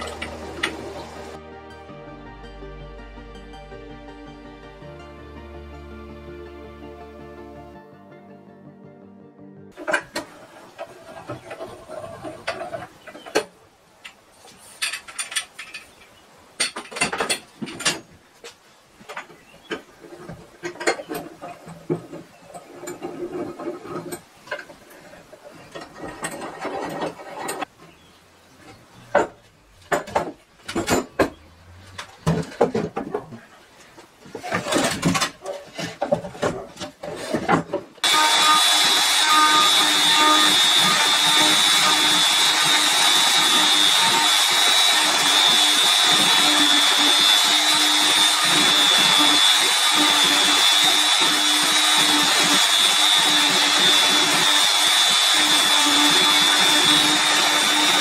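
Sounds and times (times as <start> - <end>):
router motor running: 0.0 - 1.4, 38.0 - 58.0.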